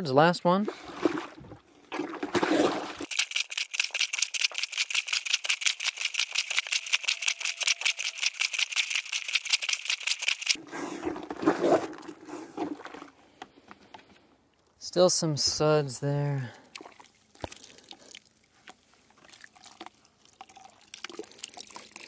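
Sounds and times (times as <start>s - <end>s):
water sloshing in bucket: 0.6s - 13.5s, 16.6s - 22.0s.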